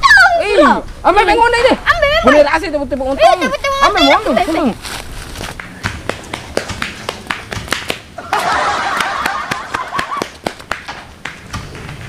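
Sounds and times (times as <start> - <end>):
running footsteps on pavement: 2.9 - 12.0.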